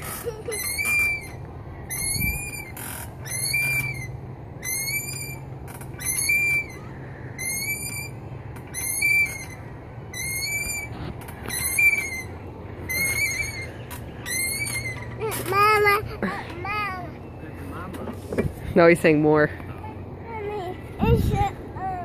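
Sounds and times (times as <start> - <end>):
chain swings squeaking: 0.0 - 17.5.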